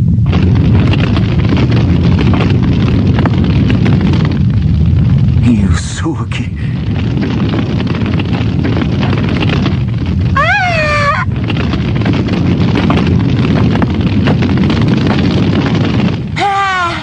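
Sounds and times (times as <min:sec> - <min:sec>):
explosion rumble with crackling: 0:00.0 - 0:17.0
woman's high-pitched cry: 0:10.4 - 0:11.3.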